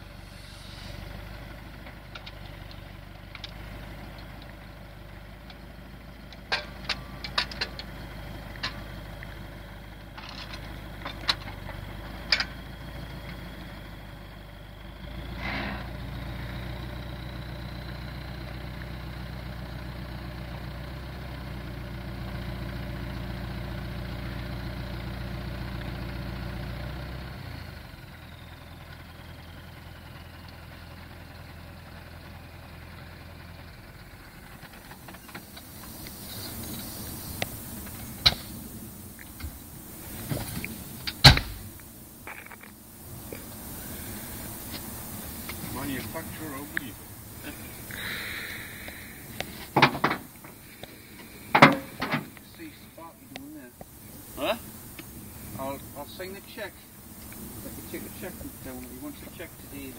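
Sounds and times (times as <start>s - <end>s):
tractor diesel engine running: 0.0s - 59.9s
metal clanks: 6.4s - 7.9s, 49.5s - 50.6s, 51.5s - 52.6s
faint high whine: 34.2s - 59.9s.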